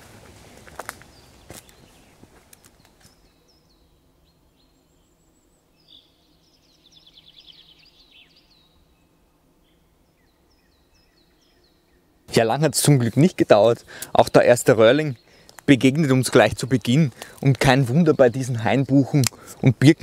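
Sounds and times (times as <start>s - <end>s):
light footsteps on forest path: 0.0s - 3.5s, 13.0s - 18.2s
faint birdsong chirps and trills: 0.4s - 20.0s.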